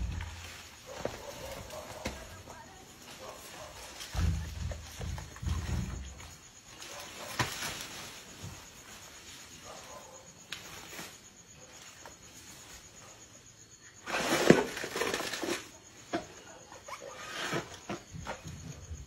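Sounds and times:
night insects chirring: 0.0 - 19.0
dry palm fronds rustling and snapping: 6.7 - 9.2, 14.2 - 15.8.

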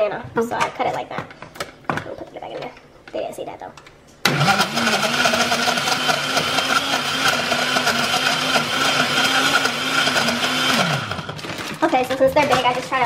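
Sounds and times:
blender running: 4.3 - 11.7.

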